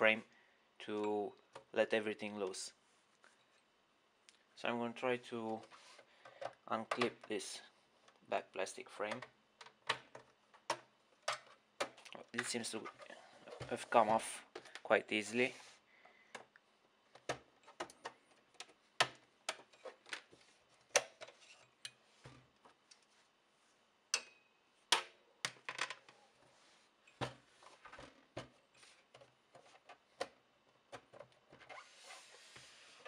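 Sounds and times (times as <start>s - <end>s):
rubbing scrape: 31.7s - 33.0s.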